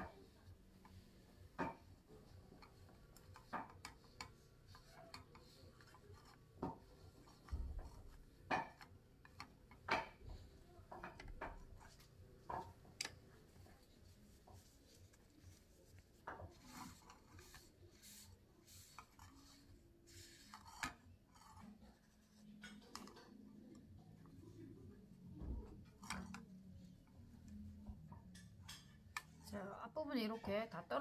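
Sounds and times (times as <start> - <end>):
chopsticks tapping and scraping pan: 1.5 - 15.2.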